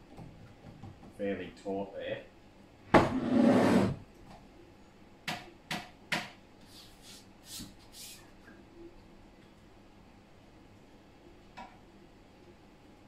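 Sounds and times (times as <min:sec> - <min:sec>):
soft scrapes: 0:03.1 - 0:04.0.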